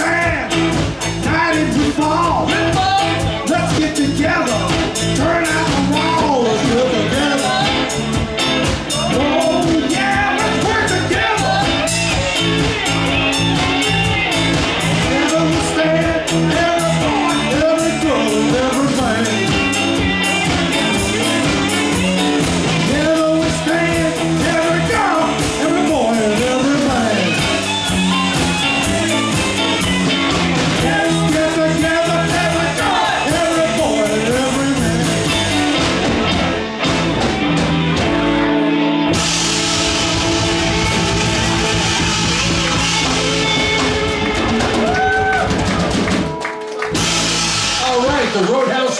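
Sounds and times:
drum kit beat: 0:00.0 - 0:48.9
electric bass: 0:00.0 - 0:48.9
electric guitars: 0:00.0 - 0:48.9
lead vocal singing: 0:01.2 - 0:12.6, 0:14.9 - 0:21.5, 0:22.8 - 0:27.6, 0:30.8 - 0:35.6.

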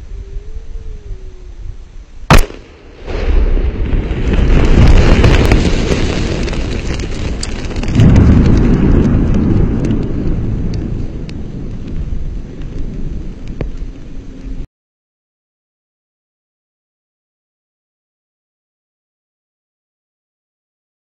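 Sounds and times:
deep rumble: 0:00.0 - 0:14.7
explosion bang: 0:02.3 - 0:11.0.

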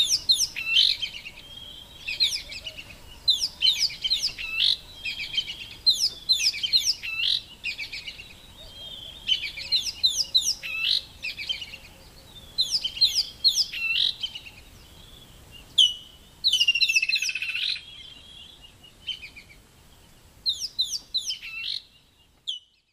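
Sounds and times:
high-pitched chirping calls: 0:00.0 - 0:15.0, 0:15.6 - 0:19.6, 0:20.4 - 0:22.8.

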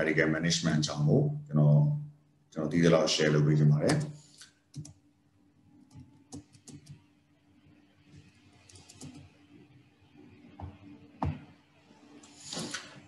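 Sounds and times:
keyboard and mouse clicking: 0:04.7 - 0:05.0, 0:05.9 - 0:07.0, 0:08.7 - 0:09.3.

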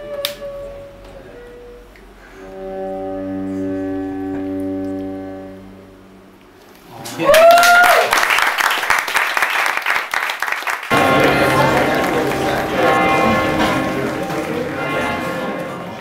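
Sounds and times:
cello bowed sustained note: 0:00.0 - 0:06.4, 0:10.9 - 0:16.0
person cheering: 0:07.1 - 0:08.3
audience applause: 0:07.2 - 0:16.0.

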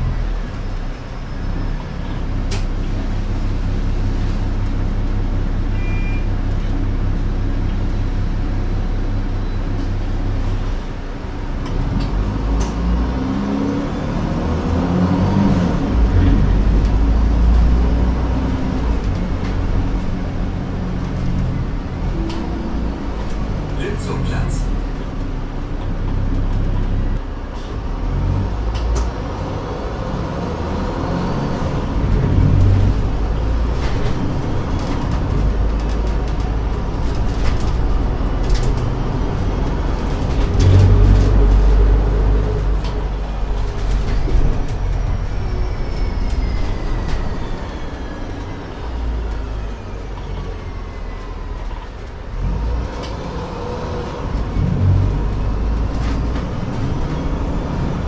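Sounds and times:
bus diesel engine rumble: 0:00.0 - 0:58.0
falling whines: 0:44.4 - 0:51.8.

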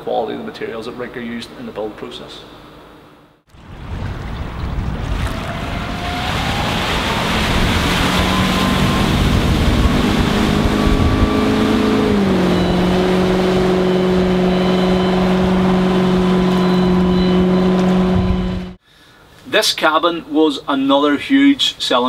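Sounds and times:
rush of water and wind: 0:03.5 - 0:18.6
boat engine running at speed: 0:05.1 - 0:18.8.

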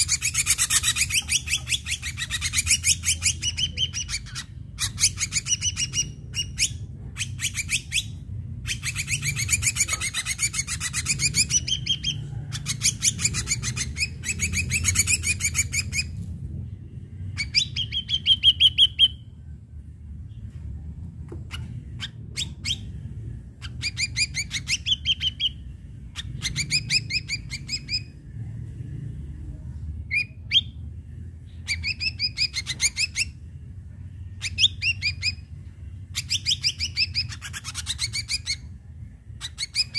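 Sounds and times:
bird singing chattering trills: 0:00.0 - 0:16.2, 0:17.3 - 0:19.2, 0:23.6 - 0:28.1, 0:36.1 - 0:38.7.

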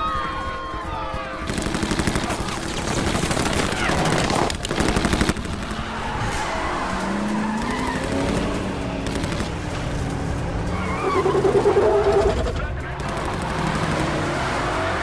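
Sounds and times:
tyres skidding on dirt: 0:00.0 - 0:15.0
automatic gunfire: 0:01.4 - 0:05.9, 0:07.6 - 0:09.6, 0:13.0 - 0:14.2
car engines revving hard: 0:04.2 - 0:15.0
tyre squeal: 0:10.7 - 0:12.5.

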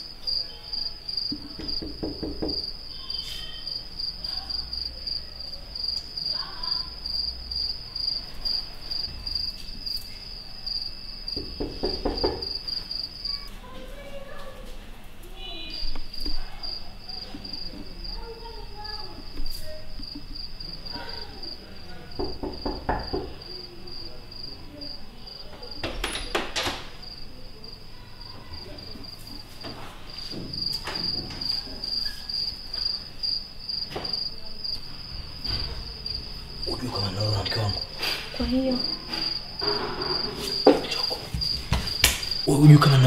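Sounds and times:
cricket chirping: 0:00.0 - 0:43.0
knocks on wooden door: 0:01.3 - 0:02.7, 0:11.4 - 0:12.6, 0:22.2 - 0:23.4.

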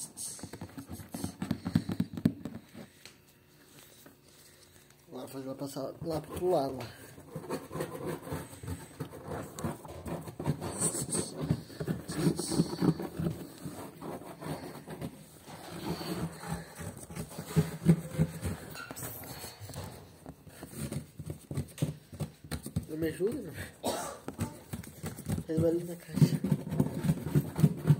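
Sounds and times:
cat rubbing against cardboard: 0:06.0 - 0:19.1.

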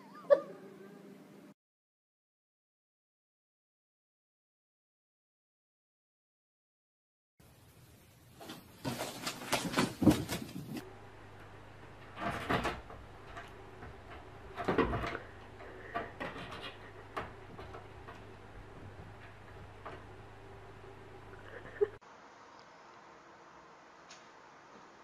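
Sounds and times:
low steady hum: 0:07.4 - 0:24.7.

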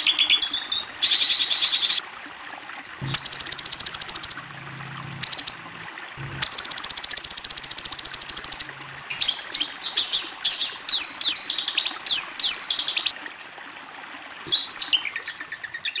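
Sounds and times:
stream water hiss: 0:00.0 - 0:16.0.

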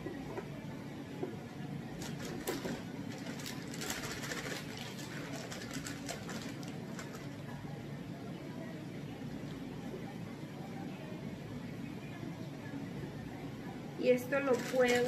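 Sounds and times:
steady low hum: 0:00.0 - 0:15.0
plastic bag crinkling: 0:02.0 - 0:07.5, 0:14.3 - 0:15.0.

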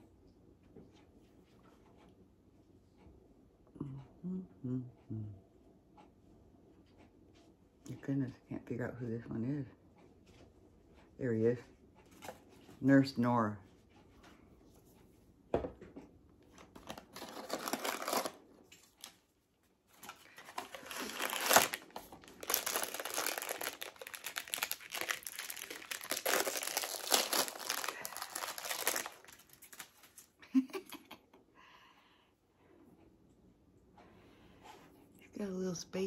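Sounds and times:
packaging crinkling and tearing: 0:16.7 - 0:19.2, 0:20.0 - 0:30.3.

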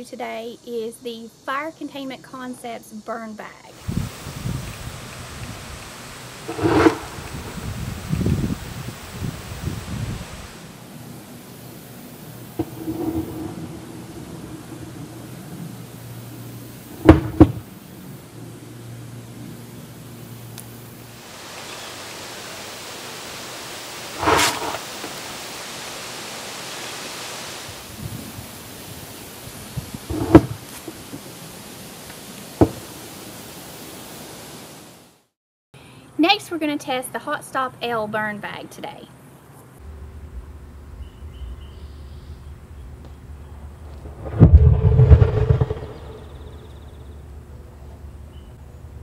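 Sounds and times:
steady hiss: 0:00.0 - 0:35.2
gas venting: 0:03.8 - 0:18.4, 0:24.1 - 0:25.4, 0:29.4 - 0:31.2.

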